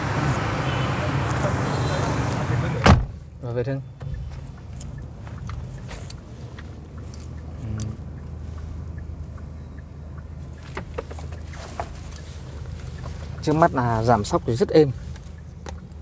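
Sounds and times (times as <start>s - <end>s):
car engine rumble: 0.0s - 16.0s
light clicks and ticks: 4.0s - 16.0s.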